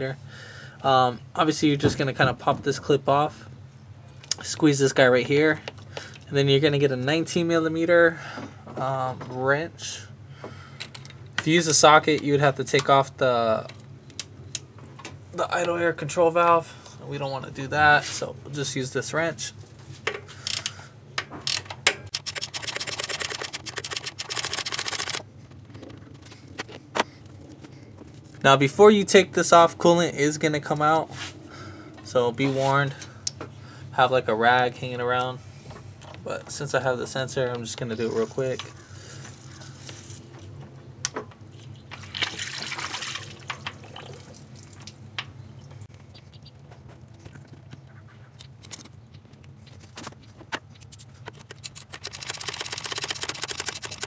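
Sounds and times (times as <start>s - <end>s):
ratchet wrench clicking: 21.5s - 25.2s, 51.6s - 54.0s
coolant splashing and trickling: 38.1s - 40.4s, 41.8s - 45.1s.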